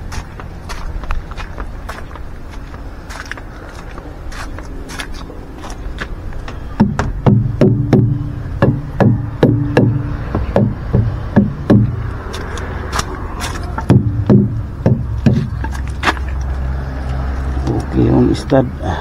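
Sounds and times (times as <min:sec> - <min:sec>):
low steady hum: 0:00.0 - 0:17.6
hollow knocks on truck tyres: 0:06.0 - 0:16.4.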